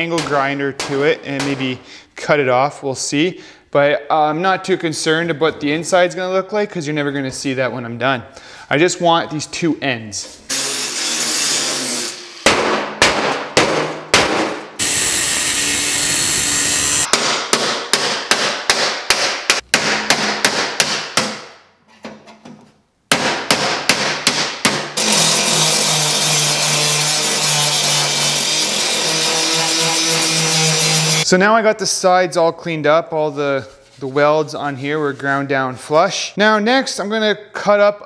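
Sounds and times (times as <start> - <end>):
angle grinder grinding steel: 10.5 - 12.4, 14.8 - 17.1, 25.0 - 31.3.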